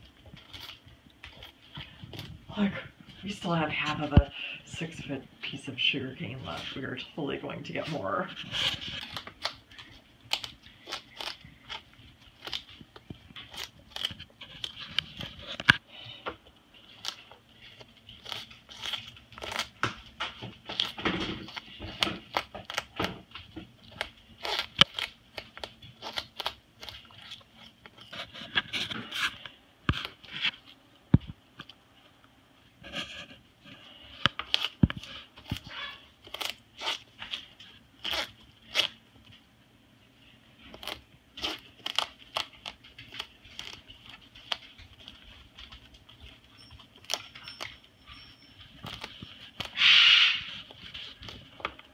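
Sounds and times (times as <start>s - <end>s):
parrot cracking sugarcane: 8.5s - 15.8s, 16.8s - 30.6s, 34.2s - 39.0s, 40.6s - 45.9s, 48.8s - 51.9s.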